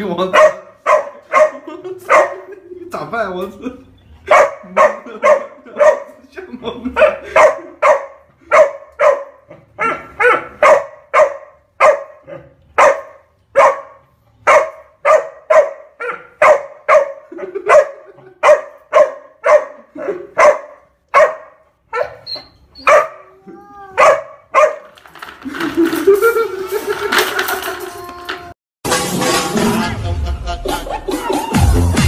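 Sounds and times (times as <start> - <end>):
dog barking: 0.3 - 2.6, 4.3 - 6.2, 7.0 - 24.9.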